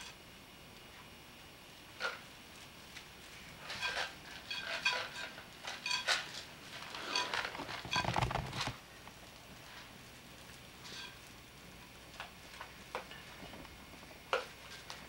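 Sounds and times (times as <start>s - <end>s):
muffled handling clatter: 3.6s - 8.8s.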